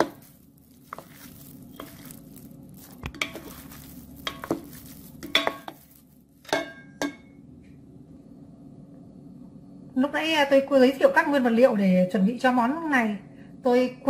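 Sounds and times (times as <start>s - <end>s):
soft wet squishes: 0.0s - 6.5s
utensils knocking against bowl: 2.9s - 7.3s.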